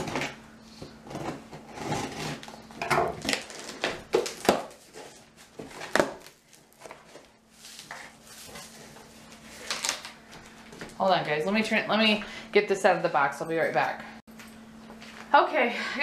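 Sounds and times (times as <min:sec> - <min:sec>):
cardboard scraping and rustling: 0:01.0 - 0:10.0.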